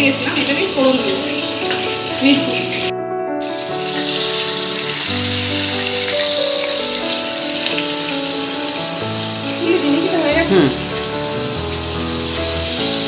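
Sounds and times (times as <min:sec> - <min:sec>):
background music: 0:00.0 - 0:13.0
fish sizzling in oil: 0:03.4 - 0:13.0.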